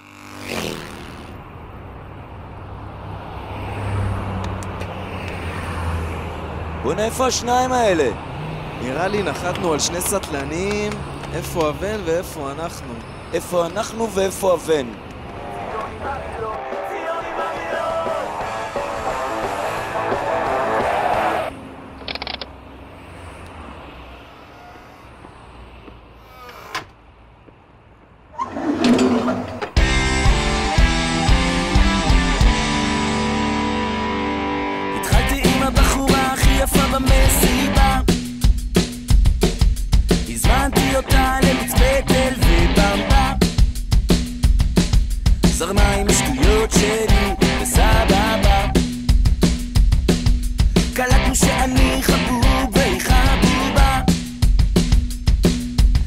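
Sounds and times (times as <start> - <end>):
rumble of road traffic: 0.0 - 56.0
car passing whoosh: 2.6 - 6.8
rattling scraping noise: 28.4 - 29.8.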